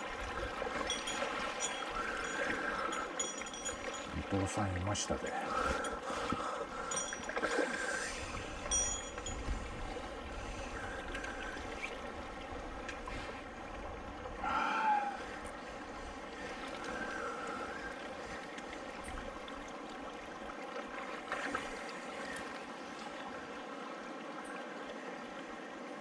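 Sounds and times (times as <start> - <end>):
water rushing and lapping: 0.0 - 26.0.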